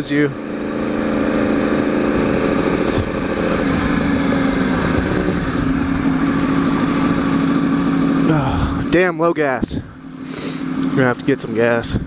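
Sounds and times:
motorcycle engine running: 0.0s - 12.0s
wind rushing over microphone: 2.1s - 7.3s.

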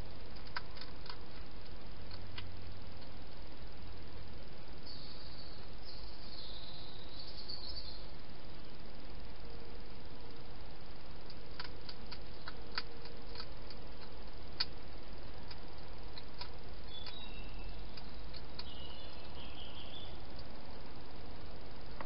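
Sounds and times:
steady hiss: 0.0s - 22.0s
hedgehog crunching food: 0.3s - 3.2s, 11.2s - 19.3s
faint high wavering chirp: 4.8s - 9.0s, 16.8s - 20.4s.

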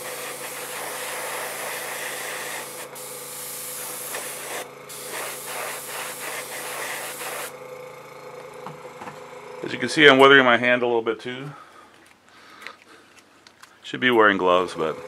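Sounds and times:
airbrush spraying hiss: 0.0s - 7.6s.

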